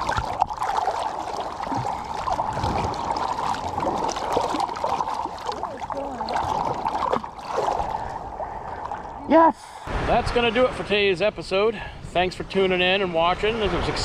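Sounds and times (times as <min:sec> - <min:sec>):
seawater splashing and sloshing: 0:00.0 - 0:10.8.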